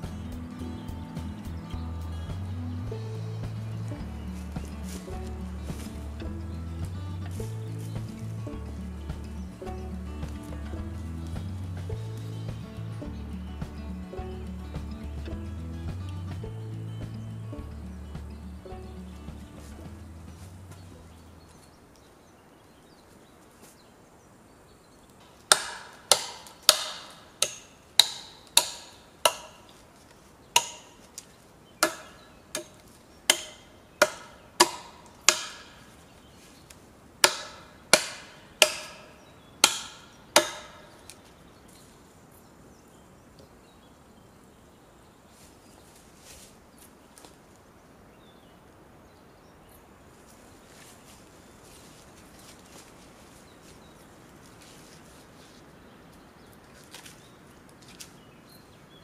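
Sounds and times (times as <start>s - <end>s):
tool striking wood: 25.5s - 29.7s, 30.6s - 31.0s, 31.8s - 35.8s, 37.2s - 40.9s.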